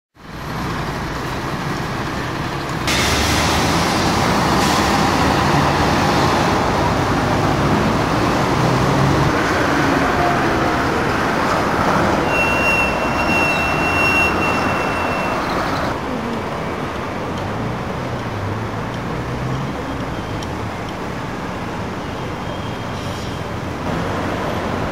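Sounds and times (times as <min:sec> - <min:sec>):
passing vehicles: 0:00.2 - 0:24.9
high steady squeal: 0:12.2 - 0:16.0.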